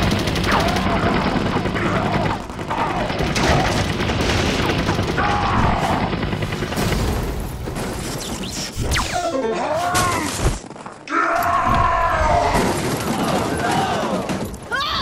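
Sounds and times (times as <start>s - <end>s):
cartoon battle music: 0.0s - 6.9s.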